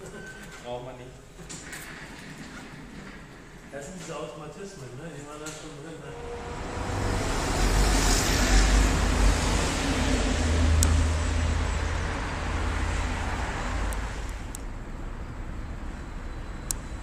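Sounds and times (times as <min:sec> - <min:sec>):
vehicle passing: 0:06.0 - 0:16.3.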